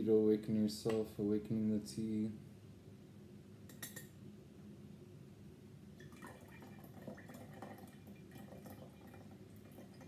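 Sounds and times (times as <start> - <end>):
tea trickling through strainer: 6.0 - 10.0.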